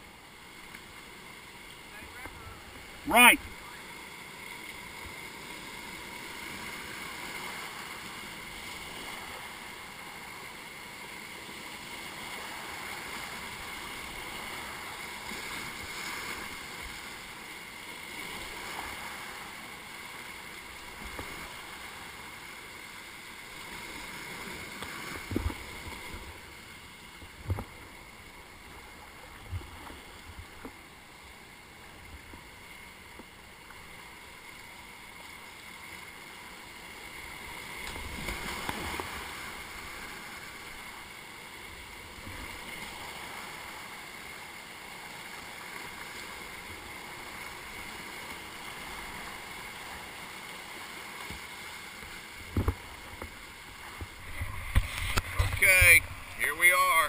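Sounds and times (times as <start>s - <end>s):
whitewater rushing: 0.0s - 10.5s, 36.0s - 57.0s.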